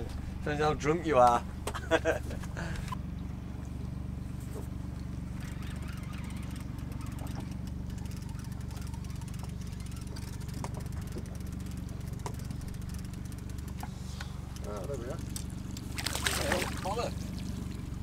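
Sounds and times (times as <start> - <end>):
boat engine droning: 0.0 - 18.0.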